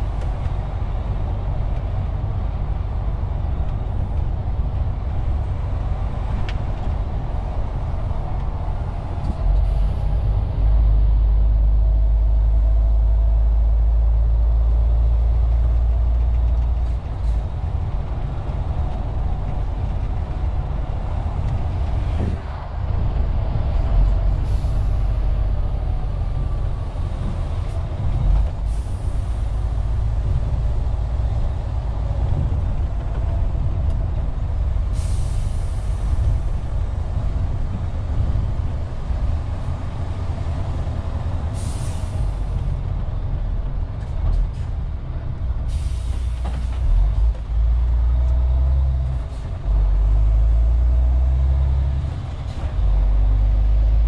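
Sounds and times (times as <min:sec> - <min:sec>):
truck engine and road rumble: 0:00.0 - 0:54.0
air brake hisses: 0:34.9 - 0:36.1, 0:41.6 - 0:42.3, 0:45.7 - 0:46.8.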